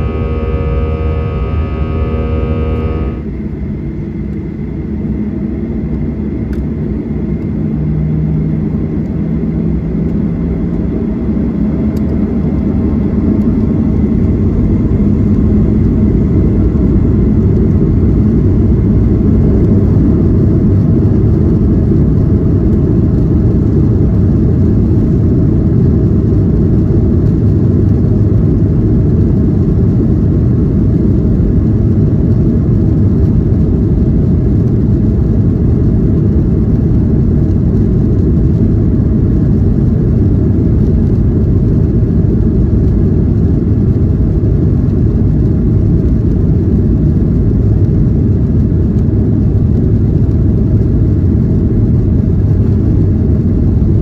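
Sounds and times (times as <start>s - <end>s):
takeoff roll rumble: 0.0s - 3.4s
airliner engine noise: 0.0s - 54.0s.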